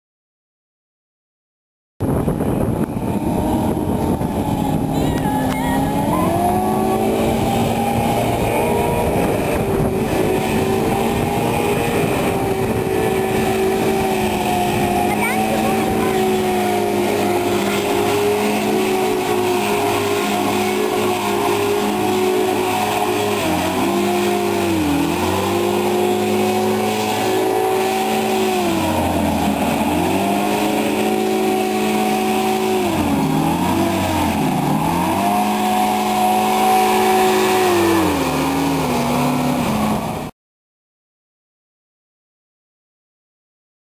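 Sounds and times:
hovercraft engine and fan running: 0:02.0 - 0:40.3.

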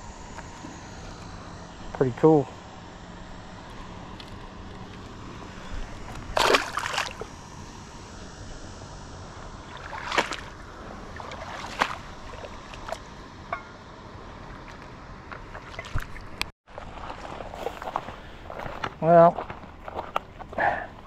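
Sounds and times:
water sloshing: 0:04.6 - 0:07.3, 0:09.6 - 0:13.8, 0:14.4 - 0:21.0
fish splashing into water: 0:06.3 - 0:07.3, 0:09.7 - 0:13.0.

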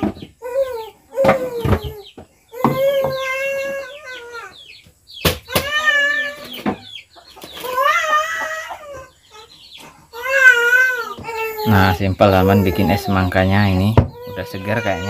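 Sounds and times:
young child crying: 0:00.4 - 0:04.6, 0:05.5 - 0:06.6, 0:07.6 - 0:09.5, 0:10.1 - 0:13.4, 0:14.1 - 0:15.0.

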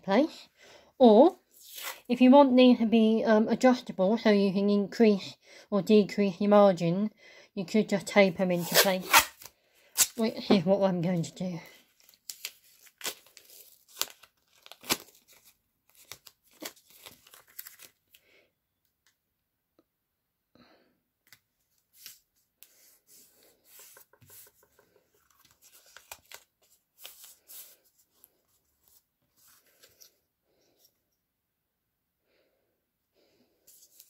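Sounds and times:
packing tape ripping off roll: 0:08.6 - 0:10.2, 0:12.0 - 0:18.0
tape crackling and rustling: 0:11.8 - 0:18.2, 0:21.2 - 0:30.2
card strips being handled: 0:23.7 - 0:27.8.

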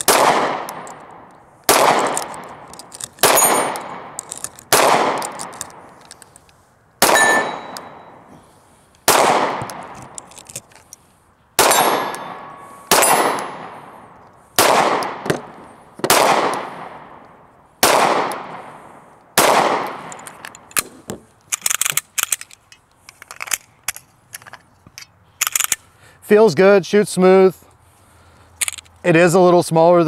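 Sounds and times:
pistol shots echoing: 0:00.0 - 0:05.8, 0:07.0 - 0:08.2, 0:09.1 - 0:10.0, 0:11.6 - 0:14.0, 0:14.6 - 0:17.2, 0:17.8 - 0:18.8, 0:19.4 - 0:20.1
metallic clicks of pistol handling: 0:00.0 - 0:08.0, 0:08.8 - 0:11.1, 0:19.2 - 0:25.9, 0:28.5 - 0:29.0.

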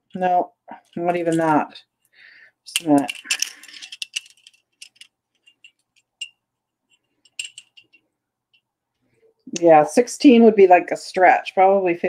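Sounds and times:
pearls clicking on metal ruler: 0:02.8 - 0:08.6.

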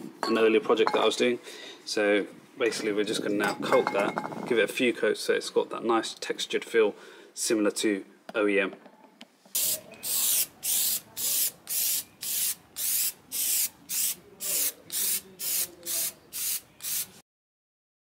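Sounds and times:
aerosol spray can hissing: 0:09.5 - 0:17.2.

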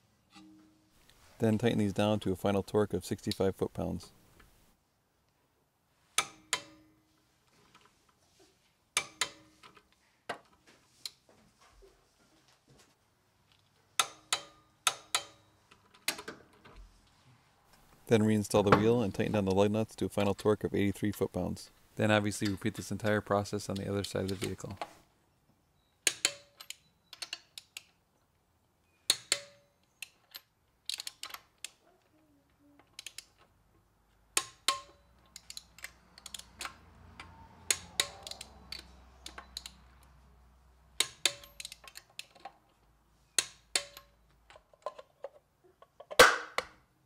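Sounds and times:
wrench ratchet clicking on lug nuts: 0:14.0 - 0:15.5, 0:26.0 - 0:27.9, 0:29.1 - 0:31.8, 0:34.4 - 0:39.8, 0:41.0 - 0:42.5, 0:43.4 - 0:44.2.

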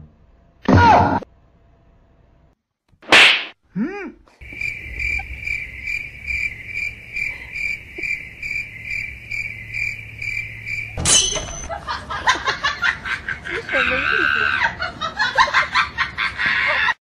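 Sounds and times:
cricket chirping: 0:04.4 - 0:11.7.

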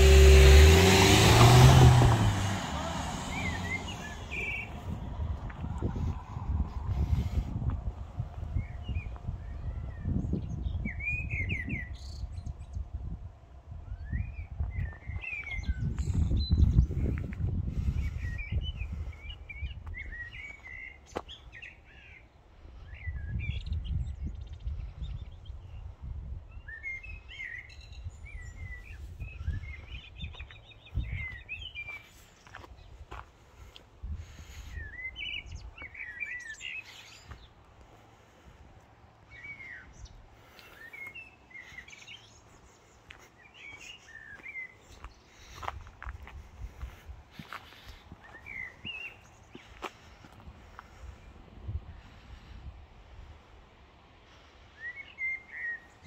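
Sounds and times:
low rumble: 0:00.0 - 0:11.2
songbirds chirping and singing: 0:03.0 - 0:07.4, 0:26.6 - 0:51.1
bird chirp: 0:03.2 - 0:05.0, 0:39.3 - 0:45.7, 0:47.5 - 0:49.8.

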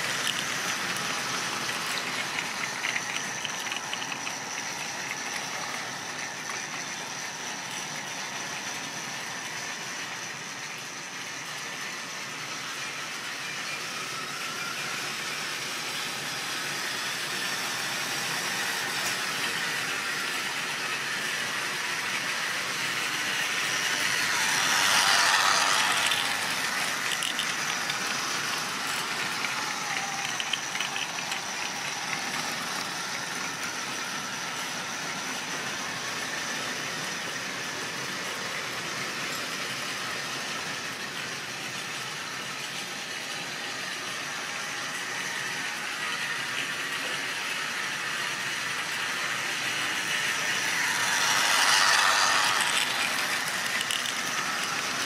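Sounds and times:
model train motor hum: 0:00.0 - 0:55.0
small wagon wheels rattling on track: 0:24.4 - 0:32.6.

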